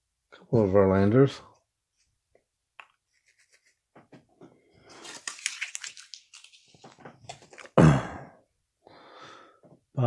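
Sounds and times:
cards sliding and flicking: 0:04.9 - 0:07.7.

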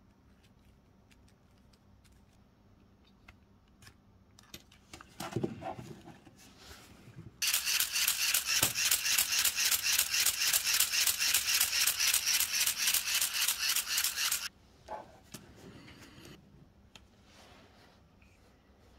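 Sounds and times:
plastic gears clicking: 0:07.4 - 0:14.5.

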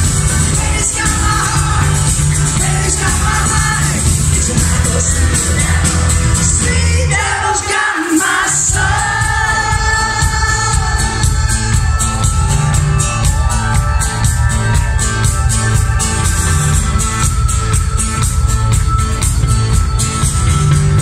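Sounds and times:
live rock band playing: 0:00.0 - 0:07.6, 0:08.2 - 0:21.0
woman singing: 0:00.3 - 0:12.2.

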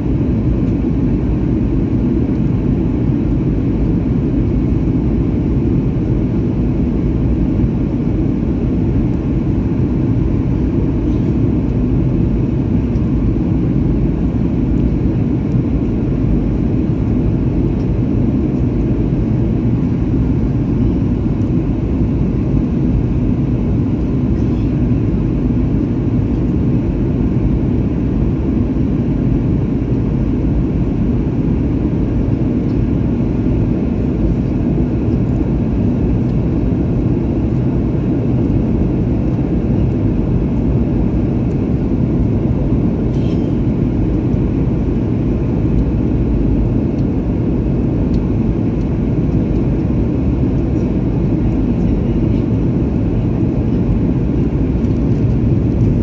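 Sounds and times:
airliner cabin engine and airflow noise: 0:00.0 - 0:56.0.

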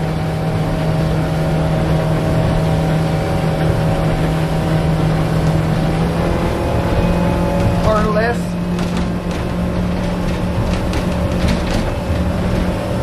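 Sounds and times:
outboard motor droning: 0:00.0 - 0:13.0.

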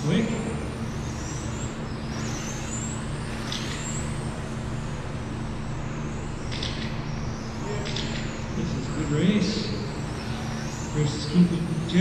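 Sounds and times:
rc car motor whine: 0:00.0 - 0:12.0
steady low hum: 0:00.0 - 0:12.0.

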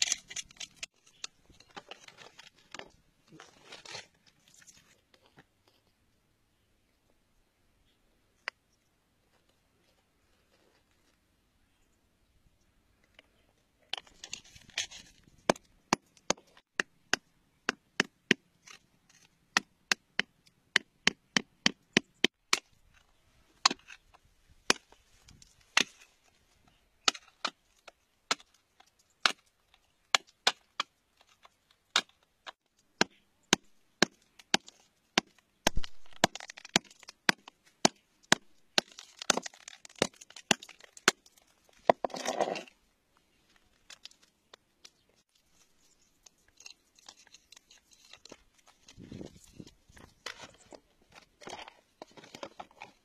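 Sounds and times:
soil and gravel scraping: 0:00.0 - 0:05.4, 0:38.6 - 0:53.0.

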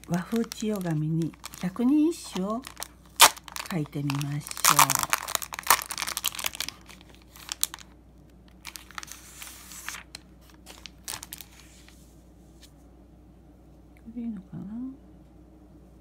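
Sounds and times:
plastic bag crinkling: 0:00.0 - 0:11.9
paper rustling: 0:08.6 - 0:12.7.

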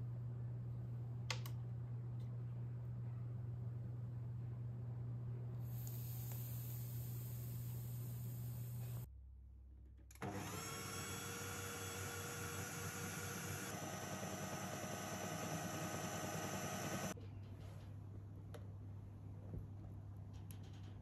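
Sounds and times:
food processor motor whining: 0:10.2 - 0:17.2.

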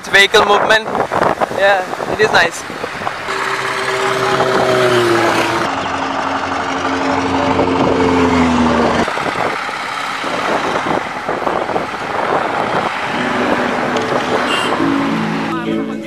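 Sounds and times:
wind and road noise: 0:00.0 - 0:16.0
motorcycle engine passing: 0:02.8 - 0:15.6.

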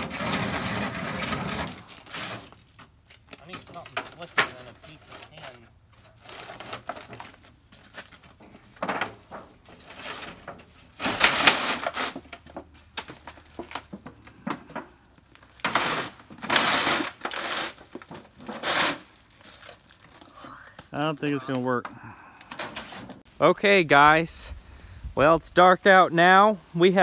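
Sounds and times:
tin sheet scraping on icy gravel: 0:00.0 - 0:02.7, 0:15.6 - 0:17.8.

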